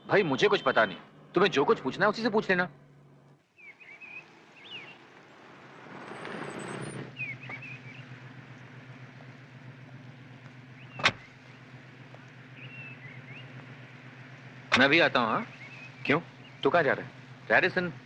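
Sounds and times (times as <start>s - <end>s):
birds chirping: 0.0s - 18.0s
car engine running: 1.1s - 18.0s.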